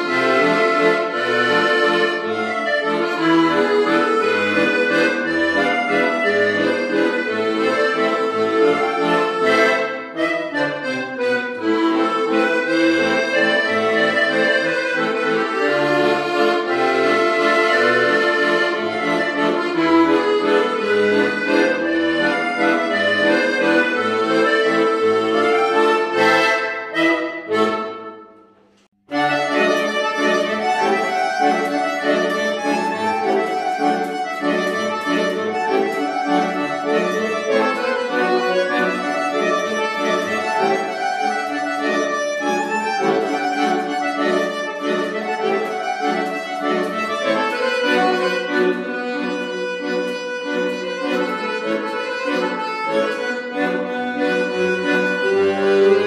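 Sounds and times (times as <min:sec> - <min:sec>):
solo piano accordion: 0:00.0 - 0:56.0.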